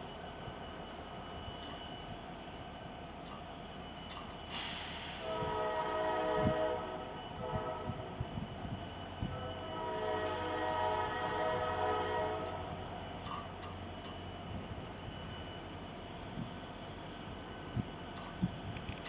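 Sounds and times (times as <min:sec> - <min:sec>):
train rumbling: 0:00.0 - 0:19.0
locomotive air horn blast: 0:04.6 - 0:08.2, 0:09.3 - 0:12.8.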